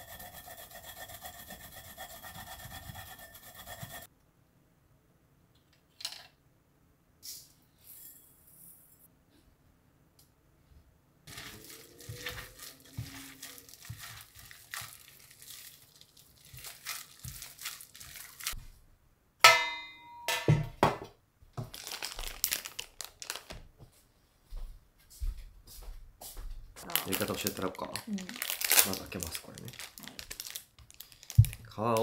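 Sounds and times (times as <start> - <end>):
hand squishing ground meat: 11.3 - 18.6
plastic glove crinkling: 11.3 - 18.6, 21.6 - 23.7, 26.8 - 32.0
plastic packet crinkling: 11.3 - 18.6, 21.6 - 23.6, 26.8 - 32.0
sharp clink with ring: 19.5 - 20.4.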